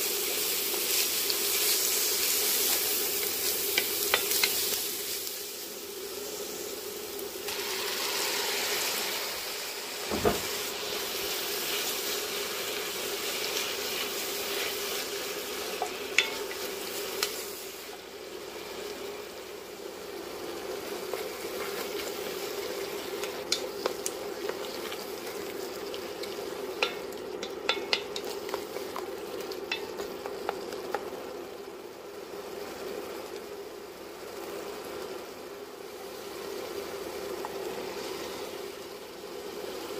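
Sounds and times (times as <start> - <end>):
tomatoes sizzling in pot: 0.0 - 39.9
thump: 10.1 - 10.5
spatula stirring: 15.8 - 17.3, 20.9 - 31.1
sharp clicks against pot: 26.8 - 28.3.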